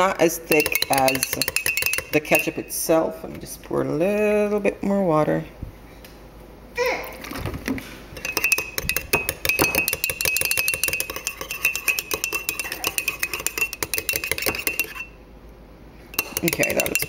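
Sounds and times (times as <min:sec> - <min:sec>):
spoon clinking in ceramic mug: 0:00.5 - 0:02.7, 0:08.2 - 0:15.2, 0:16.2 - 0:17.0.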